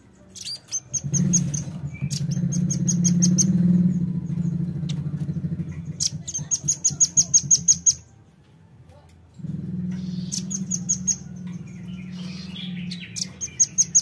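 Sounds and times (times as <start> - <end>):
bird calling high-pitched chips: 0.3 - 3.6, 12.0 - 14.0
low rattling hum: 0.8 - 8.4, 9.2 - 14.0.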